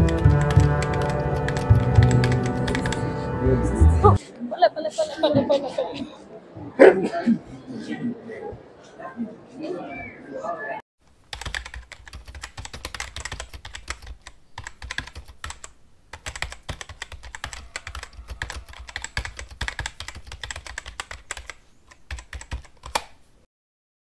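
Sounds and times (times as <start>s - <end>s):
keyboard key clicks: 11.3s - 23.2s.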